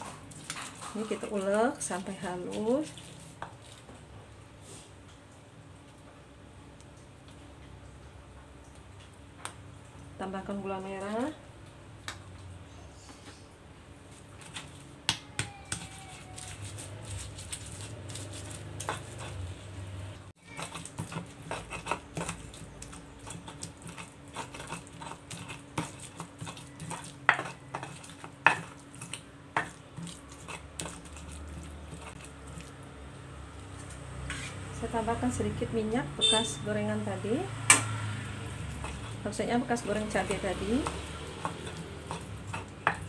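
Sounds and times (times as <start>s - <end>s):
pestle grinding in stone mortar: 14.4s - 19.8s, 20.4s - 32.8s, 37.7s - 43.0s.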